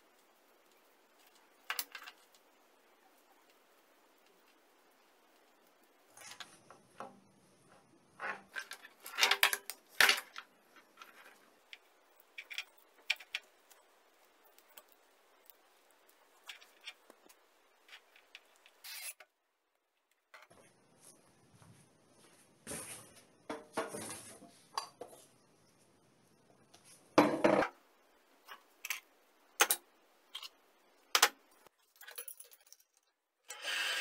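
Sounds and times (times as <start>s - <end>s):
plastic parts clicking and knocking: 1.2s - 2.5s, 6.1s - 13.8s, 29.6s - 33.1s.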